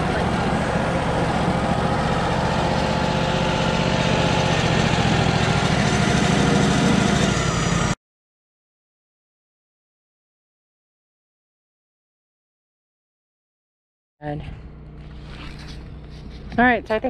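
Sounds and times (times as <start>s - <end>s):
sawmill engine running: 0.0s - 8.0s.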